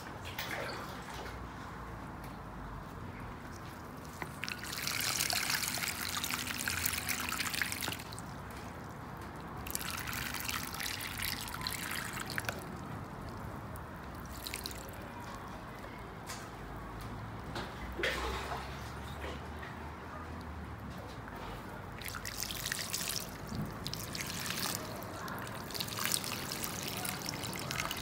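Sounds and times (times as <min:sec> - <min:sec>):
water dripping and trickling: 0:03.3 - 0:16.4, 0:17.1 - 0:28.0
water pouring onto soil: 0:03.5 - 0:15.1, 0:21.9 - 0:28.0.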